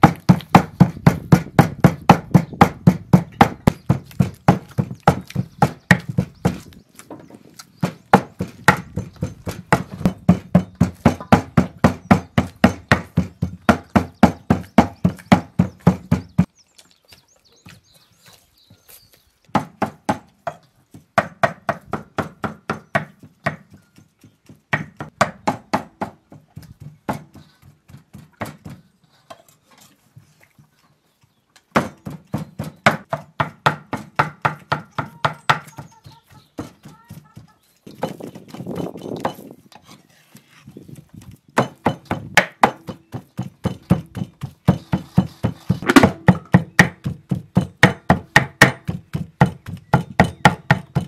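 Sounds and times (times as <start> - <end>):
cleaver chopping on wooden board: 0.0 - 6.7, 7.8 - 16.5, 19.5 - 20.6, 21.2 - 28.8, 31.7 - 35.8, 41.6 - 51.0.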